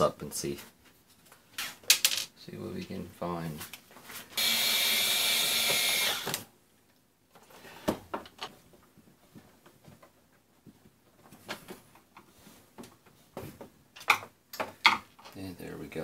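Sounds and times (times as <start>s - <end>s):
electric screwdriver whirring: 4.4s - 6.4s.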